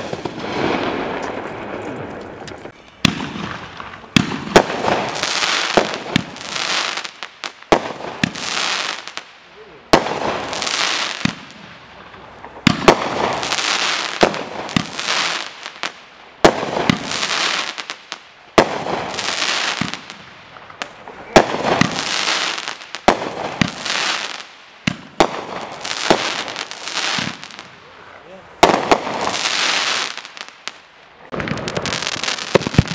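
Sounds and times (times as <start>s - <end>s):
firework reports: 0.0s - 7.1s, 7.7s - 15.8s, 18.5s - 32.9s
firework crackling hiss: 0.0s - 11.8s, 12.4s - 27.8s, 28.6s - 32.9s.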